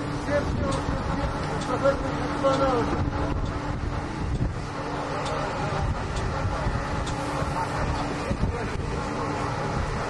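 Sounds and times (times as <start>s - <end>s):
wind on microphone: 2.8s - 10.0s.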